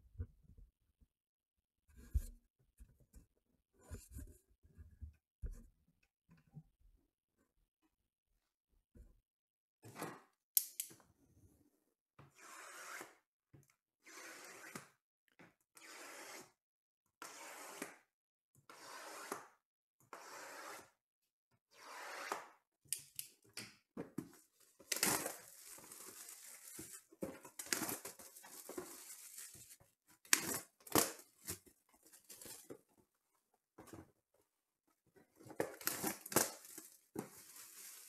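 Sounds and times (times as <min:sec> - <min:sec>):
shrink wrap tearing and crinkling: 0:24.8 - 0:31.3, 0:35.7 - 0:38.0.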